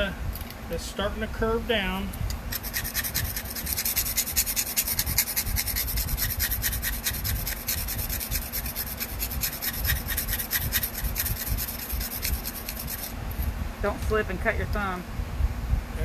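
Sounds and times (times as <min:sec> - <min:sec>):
knife blade scratching on sandpaper: 0:02.3 - 0:13.5.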